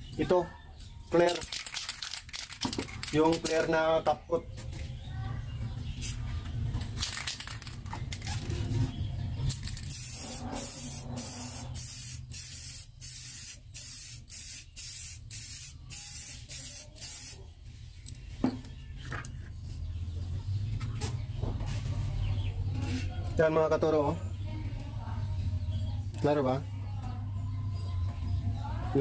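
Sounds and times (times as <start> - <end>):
spray paint can spraying: 1.2 - 3.7, 7.0 - 8.3, 9.5 - 17.4.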